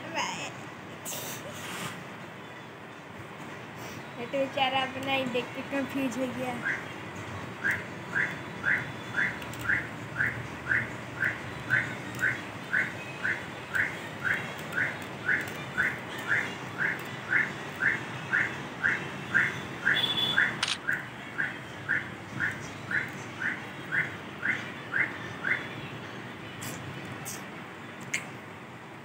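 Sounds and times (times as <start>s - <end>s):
sharp click: 20.6s - 20.9s.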